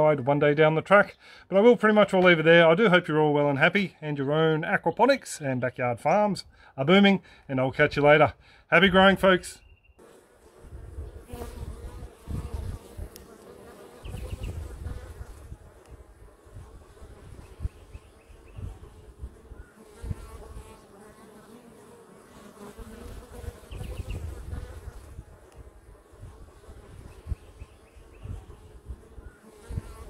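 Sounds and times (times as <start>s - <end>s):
bees buzzing: 10.0s - 30.0s.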